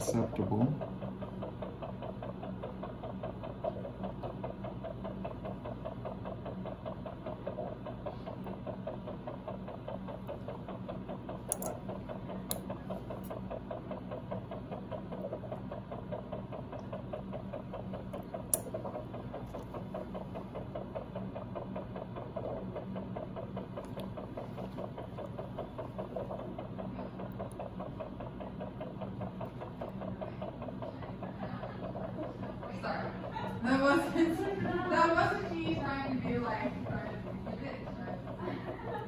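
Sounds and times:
pulsing equipment hum: 0.0 - 39.0
surgical instrument clicks: 11.5 - 11.8.

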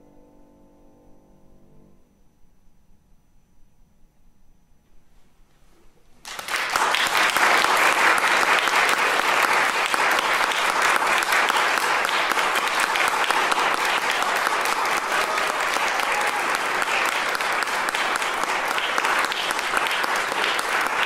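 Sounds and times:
audience applause: 6.2 - 21.0.

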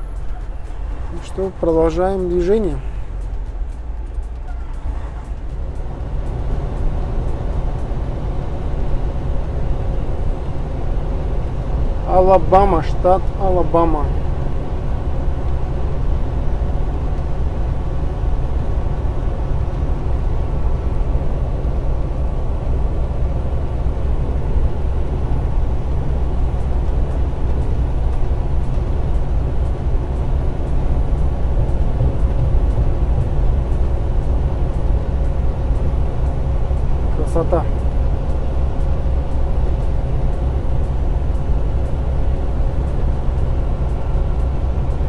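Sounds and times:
truck engine and road drone: 0.0 - 45.0.

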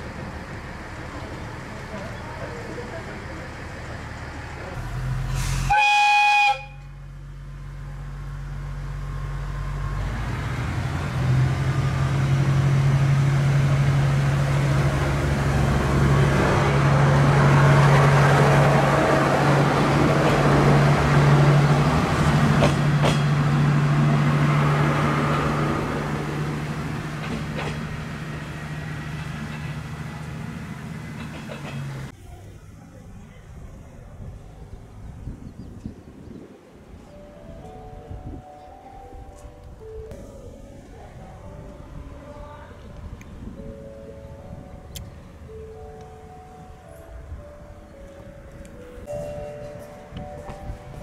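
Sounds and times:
diesel engine running: 0.0 - 5.6
train horn blast: 5.4 - 7.0.

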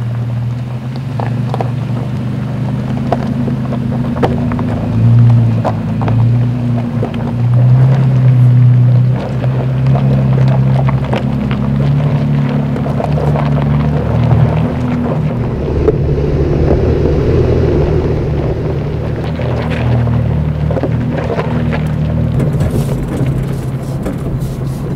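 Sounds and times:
engine pulling under load: 0.8 - 24.9.

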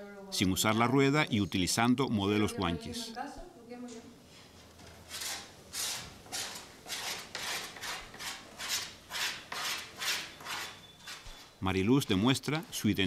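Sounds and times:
hand tool scraping clay: 5.1 - 11.5.

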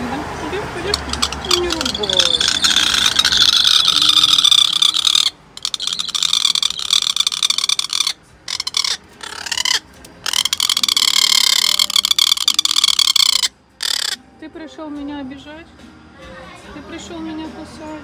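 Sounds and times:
bird giving harsh rasping calls: 0.9 - 14.2.

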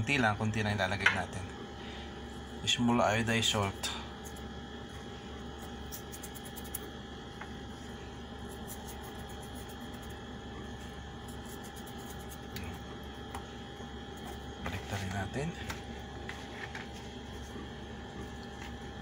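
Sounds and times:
steady tonal background hum: 0.0 - 19.0
hand rubbing salt on fish: 5.5 - 6.9, 8.3 - 10.2, 10.8 - 13.3.

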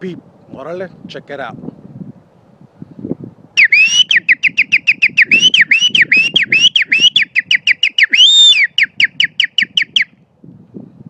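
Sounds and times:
man whistling bird imitation: 3.6 - 10.1.

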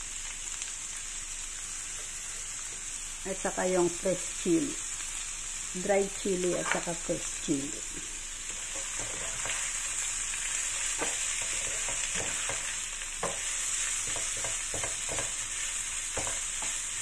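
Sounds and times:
vegetables sizzling in oil: 0.0 - 17.0
spatula scraping and tapping pan: 8.5 - 9.7, 10.9 - 16.8.

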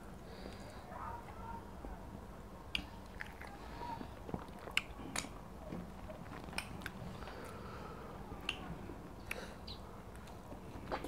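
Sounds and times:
chewing with wet smacks: 2.7 - 7.6.

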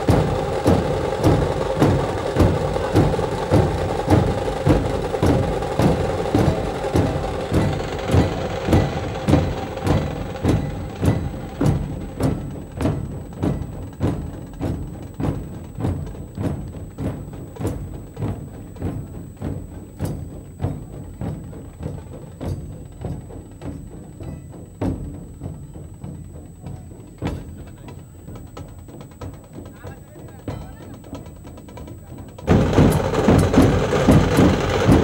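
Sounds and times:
large drums beaten with sticks: 0.0 - 35.0.

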